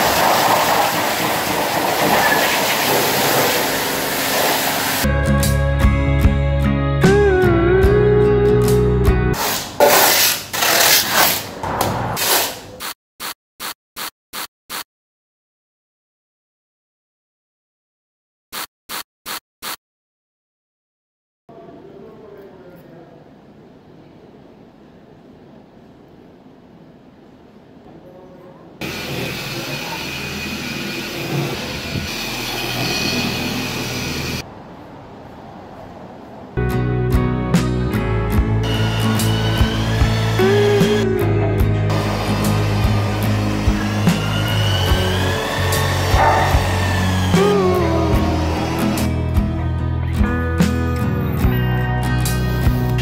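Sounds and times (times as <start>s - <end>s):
slide guitar music: 5.1s - 9.4s, 36.6s - 53.0s
spray bottle squirts: 12.2s - 14.9s, 18.6s - 19.8s
orbital polisher motor whine: 28.8s - 34.4s, 38.6s - 41.1s, 41.7s - 49.3s.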